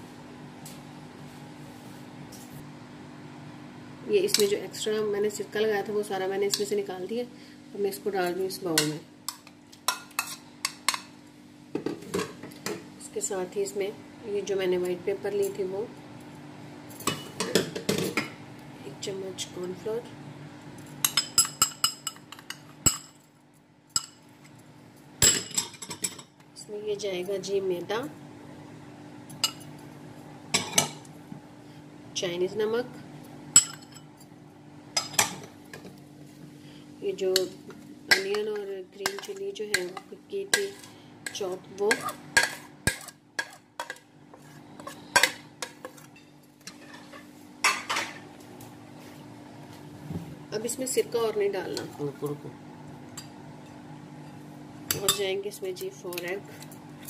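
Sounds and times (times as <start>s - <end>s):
utensil scraping bowl: 40.6s - 47.3s.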